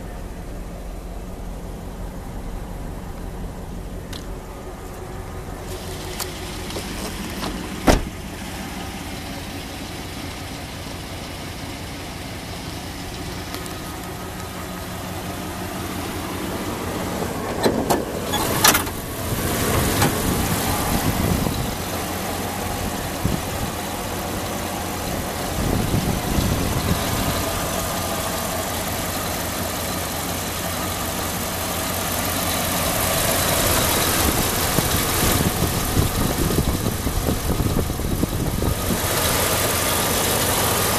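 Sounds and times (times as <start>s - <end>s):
pickup engine idling: 0.0s - 40.9s
car door shutting: 5.7s - 8.4s, 17.1s - 20.5s
sharp clunks: 7.4s - 8.2s.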